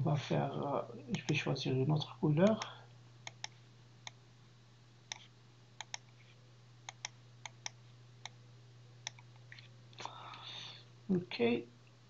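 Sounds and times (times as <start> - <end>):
low electrical hum: 0.0 - 12.0
computer mouse clicking: 2.4 - 4.2, 5.1 - 8.4, 9.0 - 9.7.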